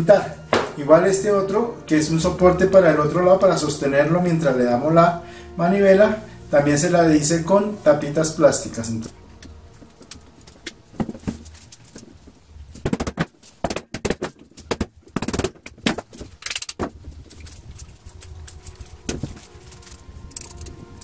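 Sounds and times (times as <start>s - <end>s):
metal hand drill parts clicking: 14.6s - 16.8s, 17.4s - 20.8s.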